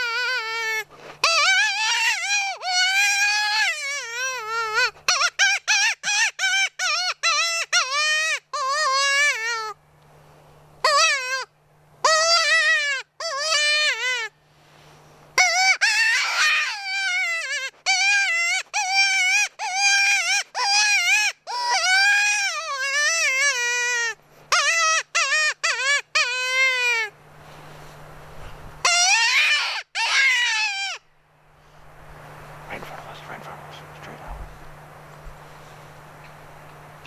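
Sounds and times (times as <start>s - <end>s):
predator mouth call cries: 0.0s - 9.8s, 10.8s - 14.3s, 15.4s - 27.2s, 28.8s - 31.0s.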